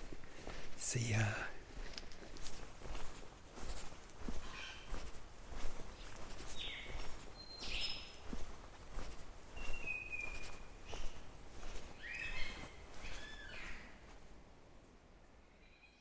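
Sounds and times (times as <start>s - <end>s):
footsteps on dirt track: 0.0s - 14.3s
bird calls: 3.6s - 14.0s.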